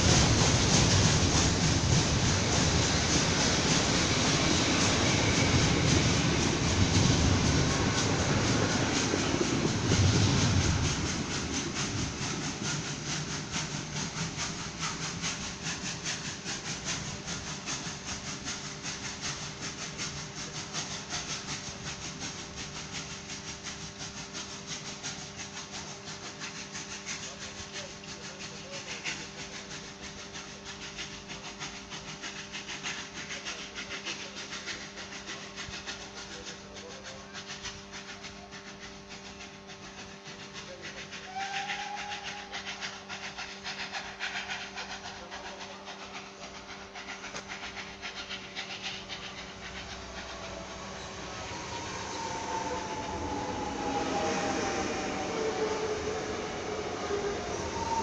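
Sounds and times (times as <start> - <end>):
steady hum: 0.0 - 25.2, 41.8 - 58.0
steam train rumble and hiss: 0.0 - 58.0.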